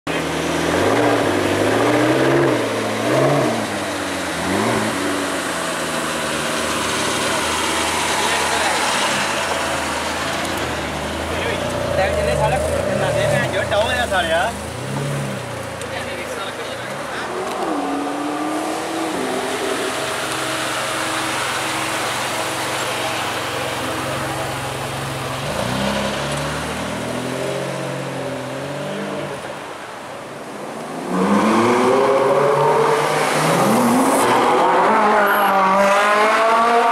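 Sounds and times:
car engine idling: 3.7s - 17.6s, 18.8s - 28.6s.

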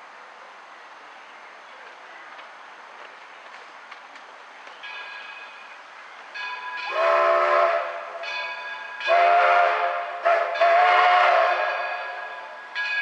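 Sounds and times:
steam locomotive whistle blasts: 6.8s - 12.8s.

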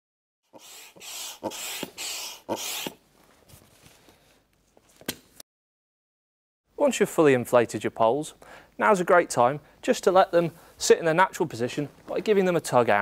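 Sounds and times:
air pump strokes: 0.5s - 3.0s.

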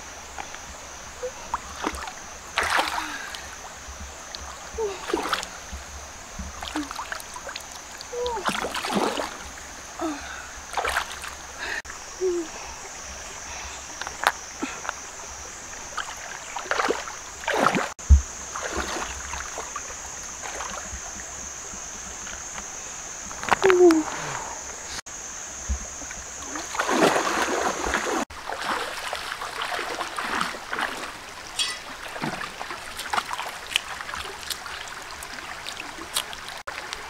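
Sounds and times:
stream water splashing: 0.0s - 12.1s, 12.8s - 24.7s, 25.6s - 37.0s
high insect drone: 0.0s - 37.0s
feet wading in water: 1.2s - 11.8s, 15.7s - 21.1s, 26.4s - 37.0s.

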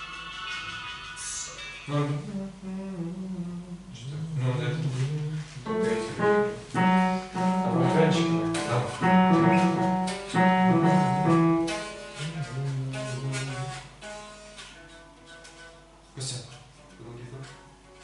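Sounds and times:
man singing: 1.2s - 6.5s, 7.5s - 9.8s, 12.1s - 13.8s
piano accompaniment: 4.9s - 16.0s.

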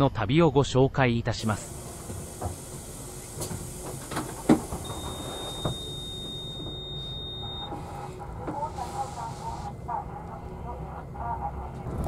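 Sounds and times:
bus engine idling: 1.4s - 12.0s
high-pitched beep: 4.8s - 7.8s.

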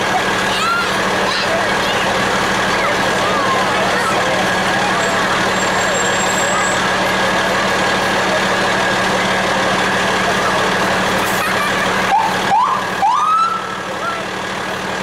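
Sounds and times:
fire truck engine running: 0.0s - 15.0s
siren whooping and wailing: 12.1s - 13.7s.

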